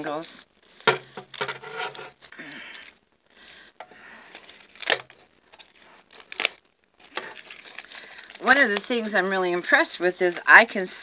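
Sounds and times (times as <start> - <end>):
plastic bag crinkling: 0.1 - 10.2.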